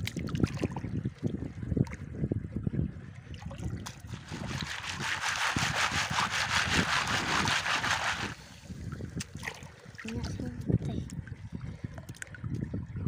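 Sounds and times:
water sloshing through mesh basket: 3.4s - 8.4s.

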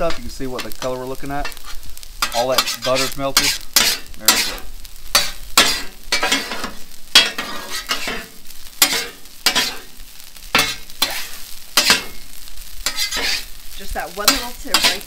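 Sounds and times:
metal spatulas scraping griddle: 0.0s - 9.9s, 10.5s - 13.6s, 14.3s - 15.0s
butter sizzling: 0.0s - 15.0s.

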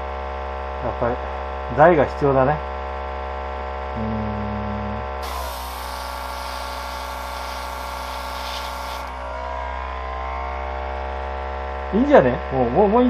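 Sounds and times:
constant electric hum: 0.0s - 13.0s
paint spraying hiss: 5.2s - 9.3s.

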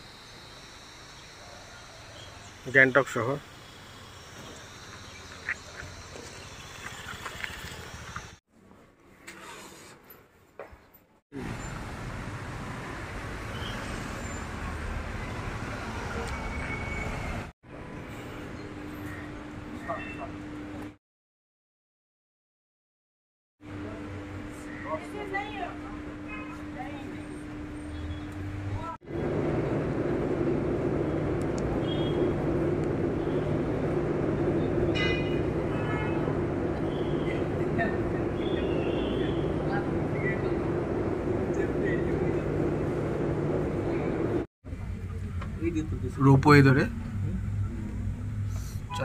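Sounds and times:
road traffic rumble: 0.0s - 8.4s, 11.3s - 21.0s, 23.7s - 49.0s
aerial ropeway machinery humming: 25.0s - 44.5s.

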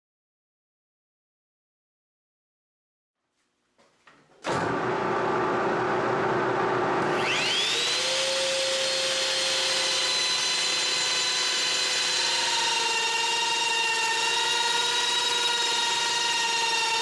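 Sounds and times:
trim router whining: 4.4s - 17.0s
lathe running: 4.5s - 17.0s.

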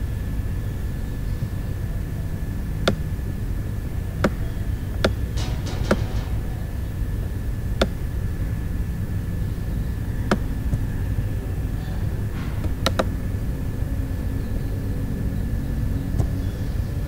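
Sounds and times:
steady low rumble: 0.0s - 17.0s
computer mouse clicking: 12.6s - 13.1s.

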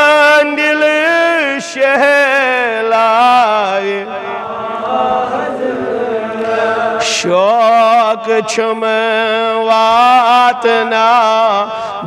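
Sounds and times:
man breathing: 6.3s - 7.0s, 11.7s - 12.0s.

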